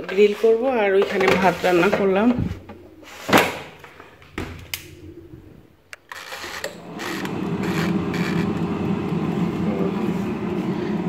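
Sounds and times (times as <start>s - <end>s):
fan whirring: 4.4s - 11.0s.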